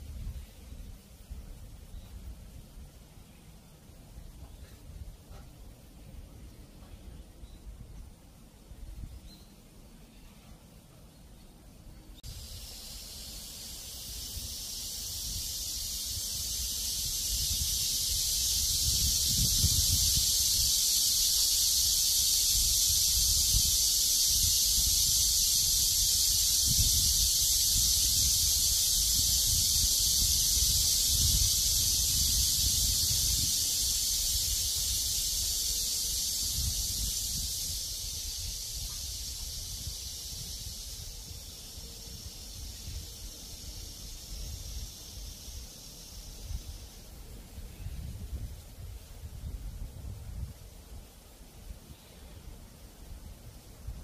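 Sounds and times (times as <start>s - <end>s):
wind rumbling on microphone: 0.0s - 3.0s, 12.2s - 51.9s
cicadas calling in chorus: 11.7s - 54.0s.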